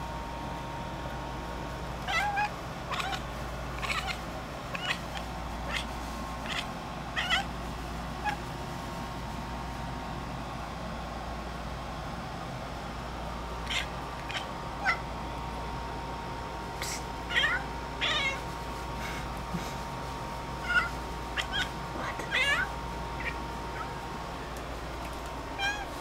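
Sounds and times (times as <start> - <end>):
cat chattering chirps: 2.0 - 8.5, 13.6 - 15.1, 16.8 - 18.4, 20.5 - 24.0, 25.5 - 25.9.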